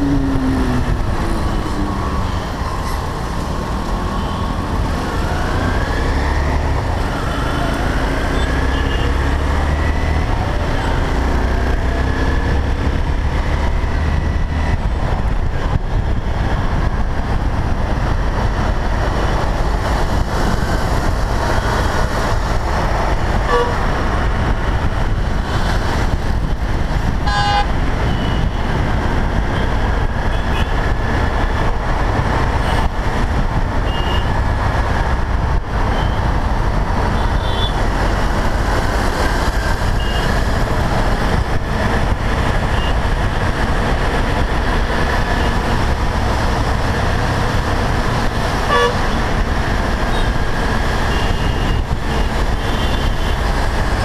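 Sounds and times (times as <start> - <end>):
motorcycle engine and wind rumble: 0.0 - 54.0
vehicle horns tooting: 8.3 - 9.2, 23.5 - 23.8, 27.2 - 28.5, 33.8 - 34.3, 37.2 - 37.8, 48.7 - 49.1, 51.1 - 53.4.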